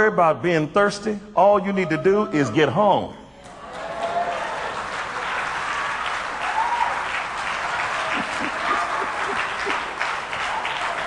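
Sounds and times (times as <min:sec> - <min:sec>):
crowd applauding: 0:03.5 - 0:11.0.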